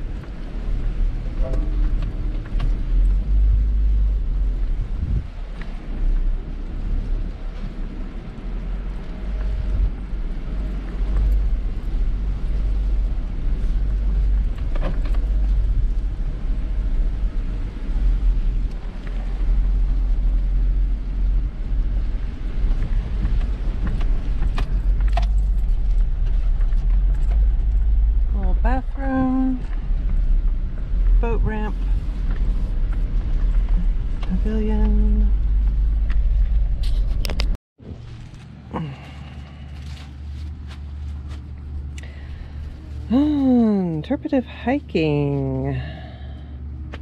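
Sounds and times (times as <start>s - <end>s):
engine and road rumble: 0.0s - 47.0s.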